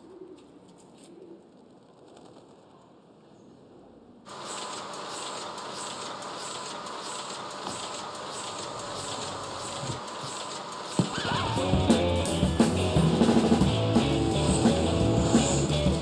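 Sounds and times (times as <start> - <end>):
industrial machine whining and clattering: 4.3 - 16.0.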